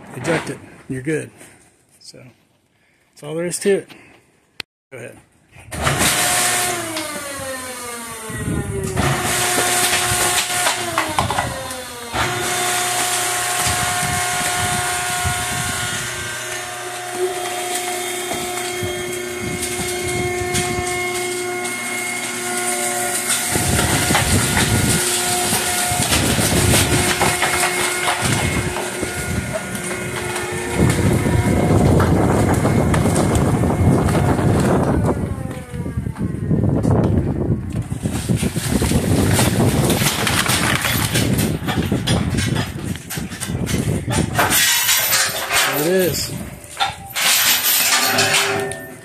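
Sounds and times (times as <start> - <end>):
hydraulic baler humming and hissing: 5.7 - 35.8, 44.0 - 49.0
clicks and crackles of compressed plastic: 37.7 - 44.7.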